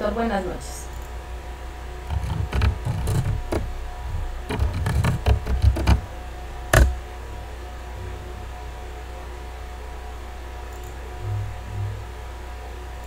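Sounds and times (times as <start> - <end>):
computer keyboard typing: 2.1 - 3.7, 4.5 - 6.0, 6.8 - 7.0.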